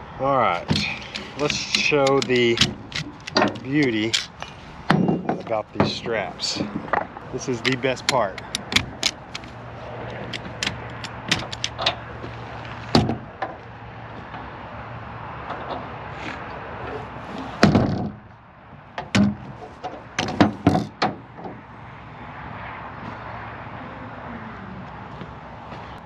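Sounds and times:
ratchet strap clicking: 0:00.7 - 0:04.6, 0:07.6 - 0:11.9.

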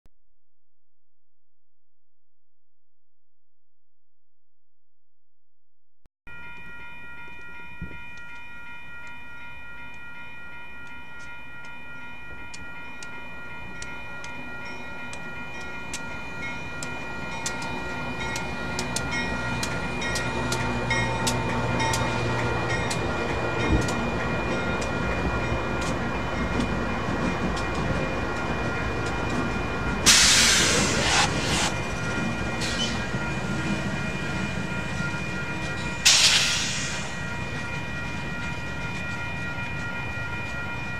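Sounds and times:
crossing warning bell ringing: 0:06.3 - 0:40.9
diesel locomotive engine rumble: 0:15.1 - 0:40.9
loud hissing burst: 0:30.1 - 0:31.8, 0:36.1 - 0:37.1.

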